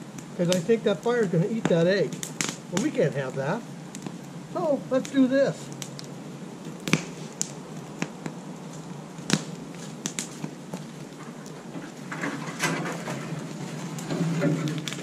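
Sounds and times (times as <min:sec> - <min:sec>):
campfire crackling and popping: 0:00.0 - 0:15.0
scraping rustling noise: 0:11.1 - 0:15.0.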